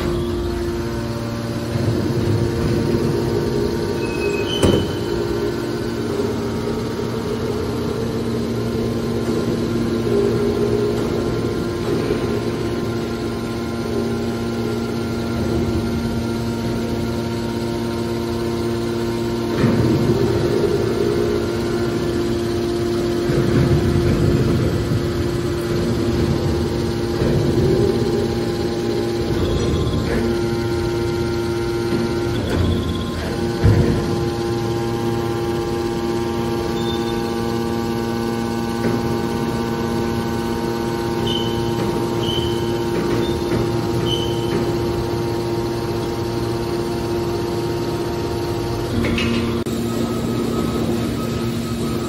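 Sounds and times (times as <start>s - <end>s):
hydraulic pump hum: 0.0s - 52.0s.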